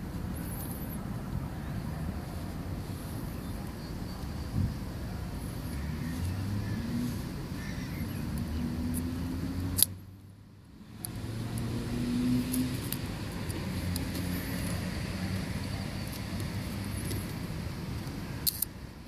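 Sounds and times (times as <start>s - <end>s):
vehicle engine humming: 0.0s - 19.0s
sharp click: 9.7s - 10.0s, 18.4s - 18.7s.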